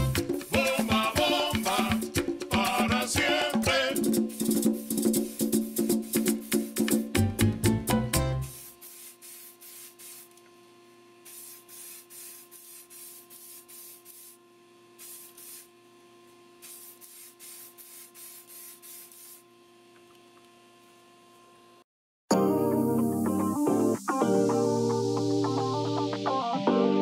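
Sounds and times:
spray paint hissing: 3.8s - 7.1s, 8.4s - 10.4s, 11.2s - 14.4s, 15.0s - 15.7s, 16.6s - 19.4s.

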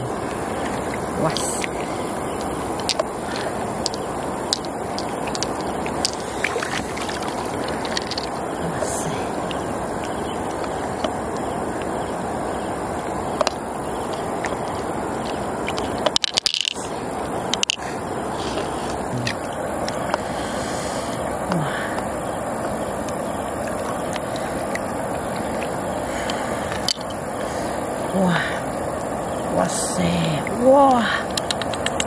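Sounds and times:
steady rushing noise: 0.0s - 32.0s
pearls clicking together: 2.3s - 9.6s, 15.3s - 16.9s, 17.5s - 17.8s, 31.3s - 32.0s.

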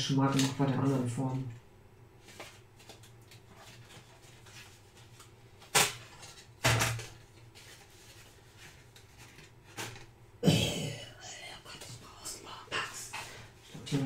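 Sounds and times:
paper and packaging handling: 2.2s - 10.1s.

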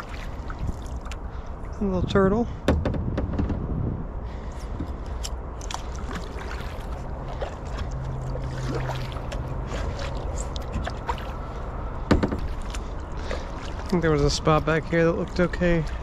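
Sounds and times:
water trickling and dripping: 0.0s - 1.8s, 5.1s - 16.0s
low hum: 2.8s - 16.0s.

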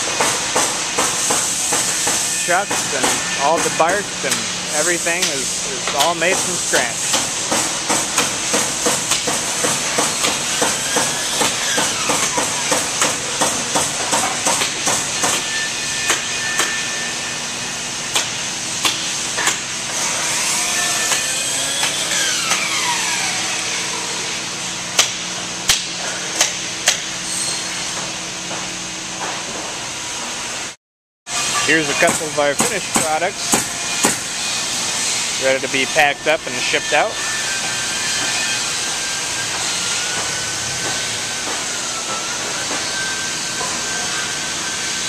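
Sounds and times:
machinery hiss: 0.0s - 19.3s
hammering knocks: 32.0s - 34.2s.

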